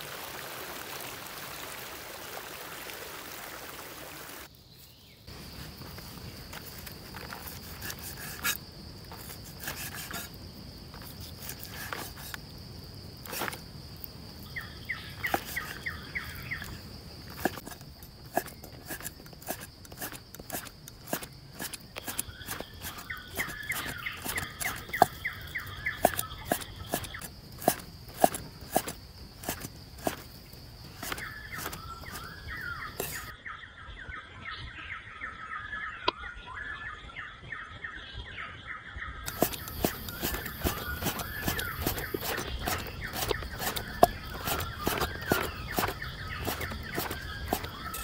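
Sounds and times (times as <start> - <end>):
high insect drone: 4.6 - 33.3, 39.3 - 48.0
rapid chirping call: 18.3 - 30.2, 39.3 - 48.0.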